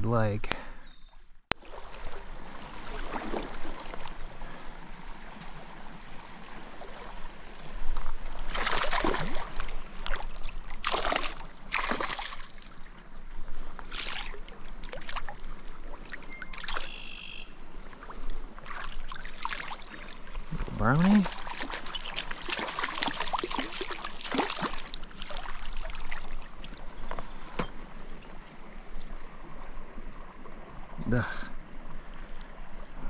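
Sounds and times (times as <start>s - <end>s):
water splashes: 1.5s - 27.6s
stream water flowing: 1.5s - 33.0s.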